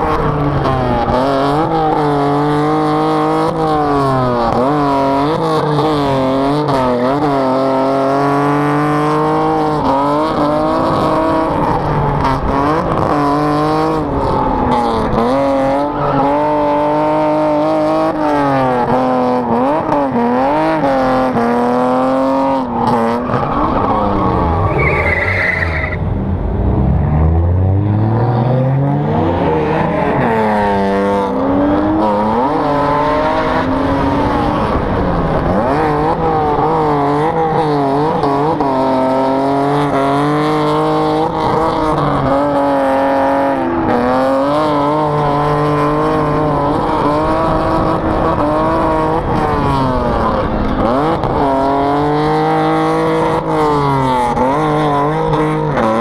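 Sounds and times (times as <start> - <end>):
car engines revving: 0.0 - 56.0
tyres squealing: 23.3 - 26.0.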